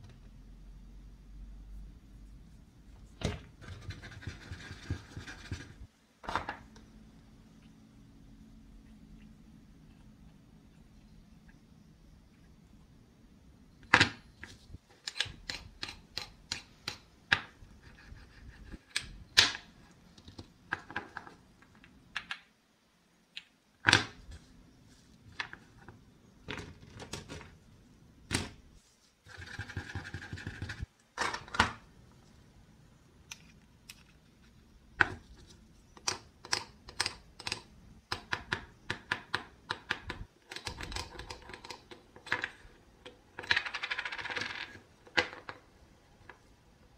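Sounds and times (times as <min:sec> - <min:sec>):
wooden toy pieces clicking: 0:36.0 - 0:45.6.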